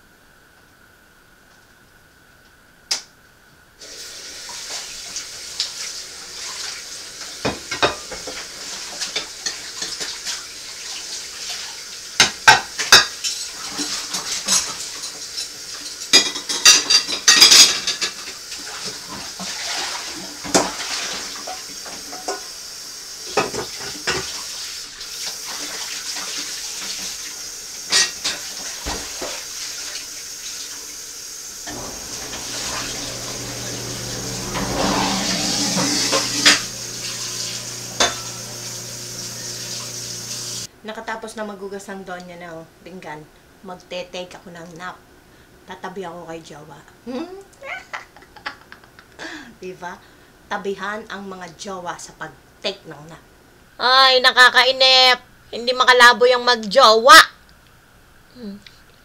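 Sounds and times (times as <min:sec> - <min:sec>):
dishes and cutlery clattering: 0:12.2 - 0:18.4, 0:31.7 - 0:37.1, 0:37.7 - 0:38.5
tap running: 0:31.7 - 0:40.7.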